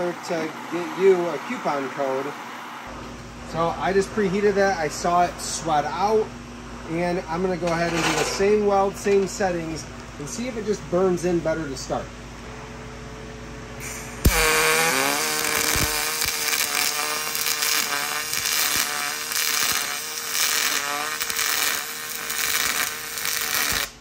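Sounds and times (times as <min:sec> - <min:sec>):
welder arc buzzing: 0:00.0 - 0:06.3, 0:13.8 - 0:24.0.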